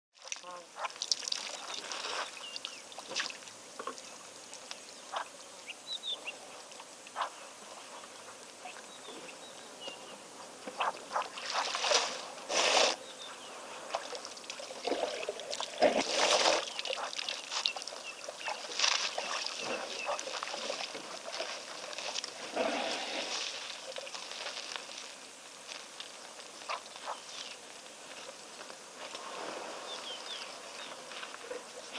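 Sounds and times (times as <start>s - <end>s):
water splashing and dribbling: 0.2s - 5.2s, 10.6s - 13.0s, 13.8s - 25.8s.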